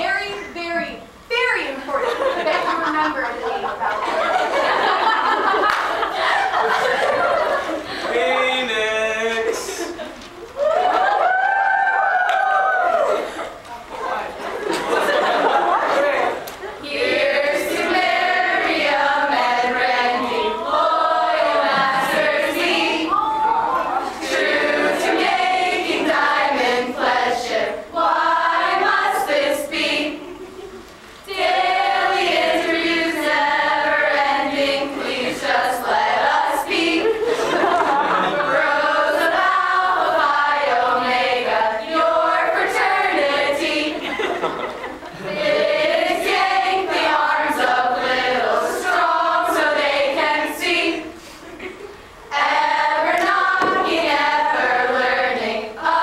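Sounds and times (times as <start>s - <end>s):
group singing unaccompanied: 14.6s - 30.7s, 31.3s - 56.0s.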